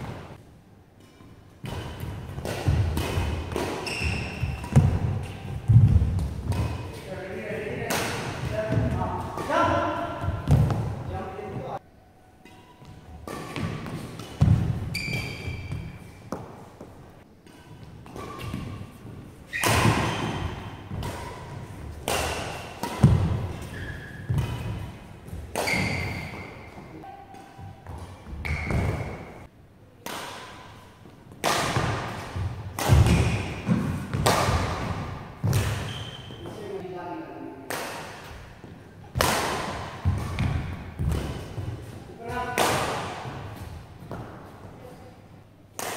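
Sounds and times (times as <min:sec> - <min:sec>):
rackets hitting shuttlecock: 0:01.0 - 0:07.2, 0:07.8 - 0:11.2, 0:12.4 - 0:16.6, 0:17.4 - 0:29.4, 0:30.0 - 0:36.6, 0:37.6 - 0:44.4
shoe squeaks: 0:03.8 - 0:04.6, 0:14.9 - 0:16.3, 0:19.5 - 0:20.7, 0:23.5 - 0:24.7, 0:25.6 - 0:29.4, 0:35.8 - 0:36.8.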